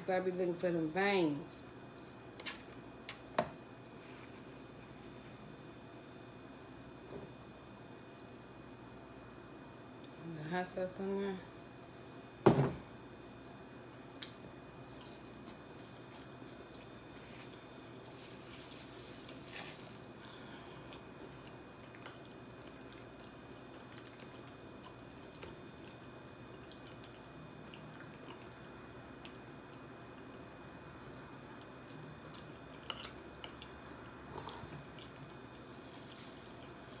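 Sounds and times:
person chewing food: 19.4 - 30.1, 31.6 - 37.0.

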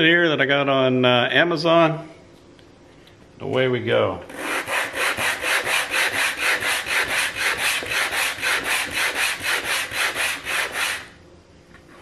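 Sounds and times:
sandpaper rasping on wood: 4.3 - 11.1.

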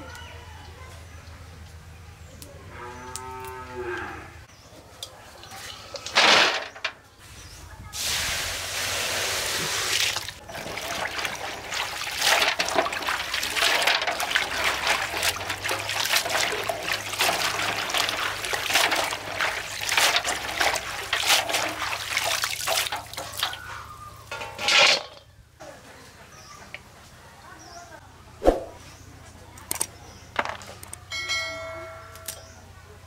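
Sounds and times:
water splashing and trickling: 8.0 - 24.8
water pouring: 8.1 - 24.9.

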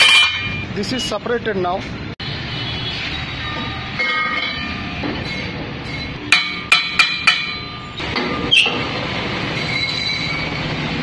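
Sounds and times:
metal-on-metal knocks: 0.0 - 0.7, 3.6 - 8.8.

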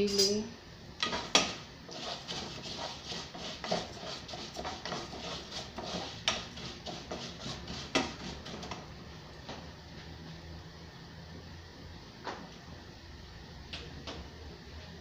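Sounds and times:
wooden spoon scraping a pot: 1.0 - 8.9.

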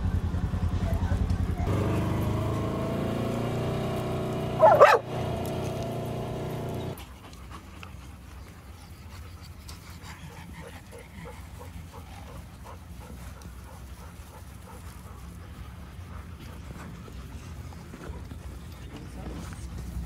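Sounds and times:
utility vehicle engine running: 0.0 - 7.0
dog crying: 4.6 - 5.1
dog panting: 6.9 - 19.2.

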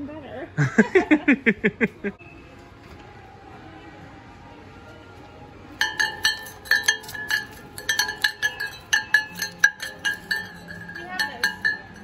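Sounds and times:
jingle bells shaken: 5.8 - 12.0.

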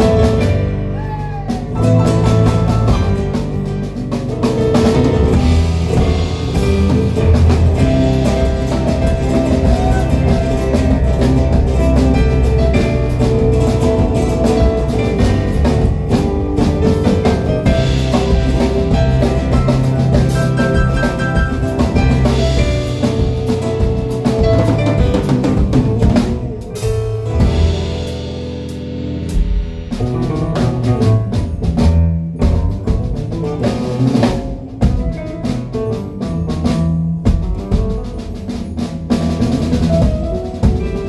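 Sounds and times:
electric guitar: 0.0 - 31.8
drum kit drumming: 0.0 - 41.0.

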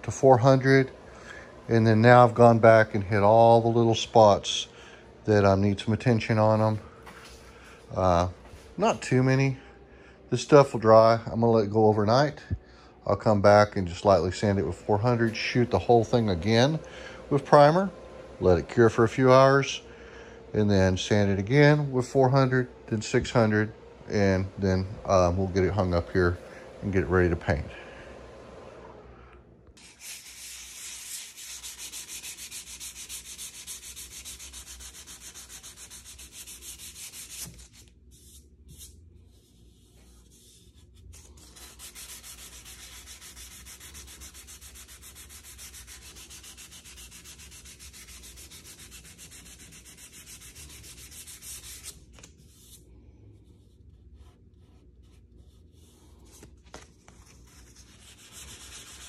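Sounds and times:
hand sanding metal: 29.8 - 39.0, 41.2 - 52.1, 57.5 - 59.0.

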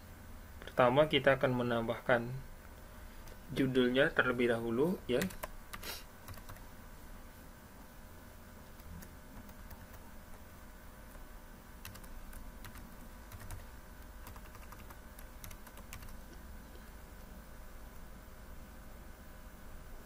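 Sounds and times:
steady low hum: 0.0 - 20.0
computer keyboard typing: 5.1 - 6.7, 8.8 - 16.4.

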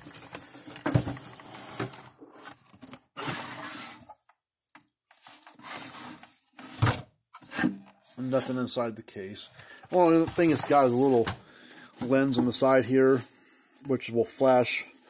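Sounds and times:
plastic case handling noises: 9.5 - 12.6.

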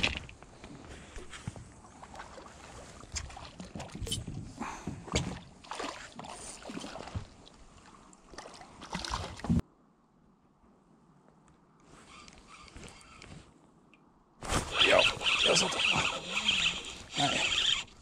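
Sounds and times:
knocks and bumps in a boat: 3.1 - 5.6.

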